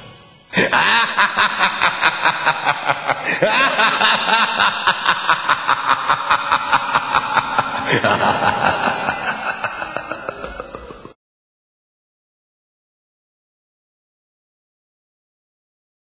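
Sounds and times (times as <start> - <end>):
drawn-out evil laugh: 0.0 - 11.2.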